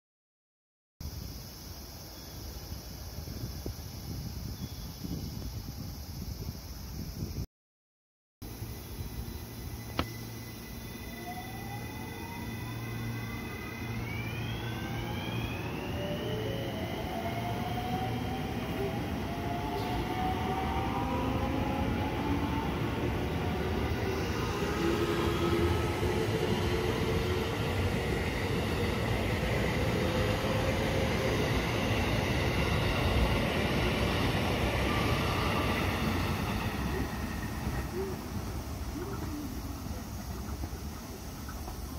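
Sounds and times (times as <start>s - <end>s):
wheels rolling on rail: 9.8s - 41.9s.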